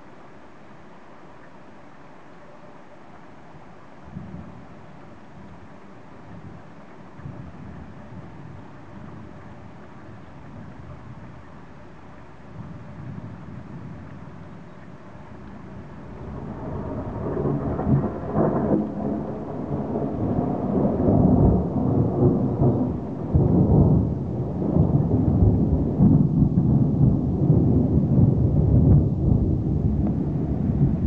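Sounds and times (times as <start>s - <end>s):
low rumble: 15.4s - 31.0s.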